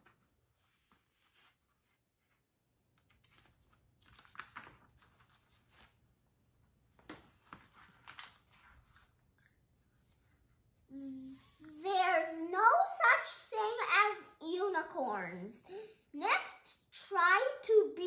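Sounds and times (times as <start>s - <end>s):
paper pages turning: 0.0s - 6.2s, 7.0s - 9.2s.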